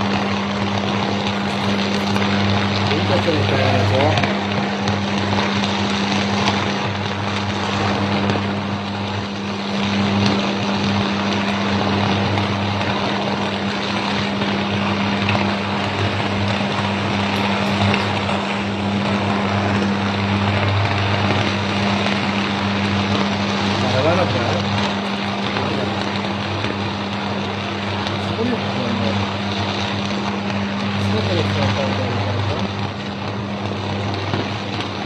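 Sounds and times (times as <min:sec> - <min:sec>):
crackling hiss of power arcs: 0:00.0 - 0:35.0
deep electrical buzz: 0:00.0 - 0:35.0.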